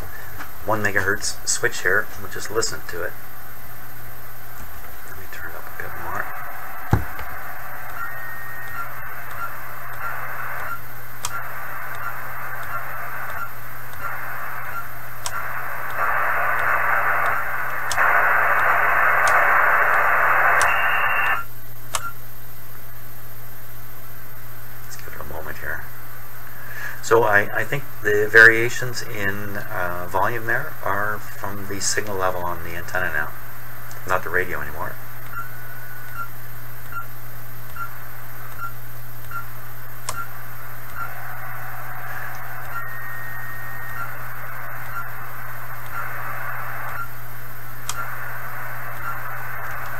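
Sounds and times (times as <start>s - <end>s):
radio receiver hiss: 0.0s - 49.9s
radio key beeps: 6.9s - 22.2s.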